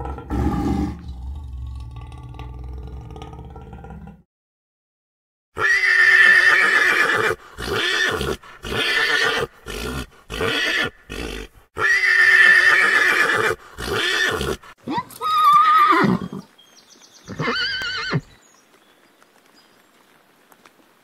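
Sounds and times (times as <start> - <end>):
horse whinnying: 5.6 - 16.5, 17.3 - 18.3.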